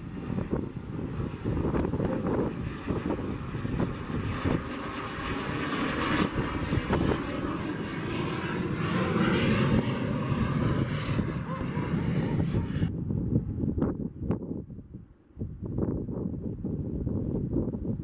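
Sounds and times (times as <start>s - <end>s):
jet engines rushing: 0.0s - 13.0s.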